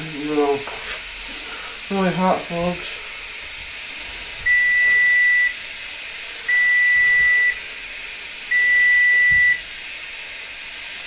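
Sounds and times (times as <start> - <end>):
meat sizzling in a pan: 0.0 - 11.0
electronic alarm beeping: 4.5 - 5.6, 6.5 - 7.6, 8.5 - 9.6.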